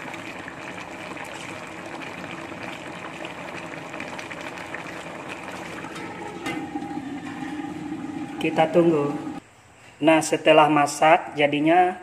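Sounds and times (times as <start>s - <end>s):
broth bubbling in a wok: 0.0s - 9.4s.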